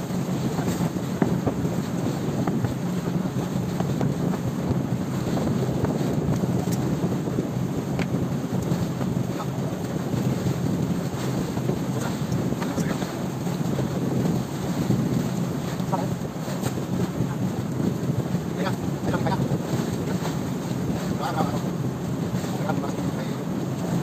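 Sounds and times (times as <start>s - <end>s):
boat engine running: 0.0s - 24.0s
water rushing along hull: 0.0s - 24.0s
wind buffeting microphone: 0.0s - 24.0s.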